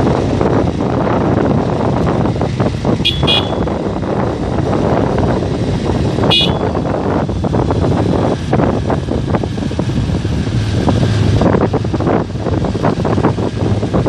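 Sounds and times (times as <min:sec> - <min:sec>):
motorcycle running at speed: 0:00.0 - 0:14.0
wind noise on microphone: 0:00.0 - 0:14.0
short high horn beep: 0:03.1 - 0:03.7.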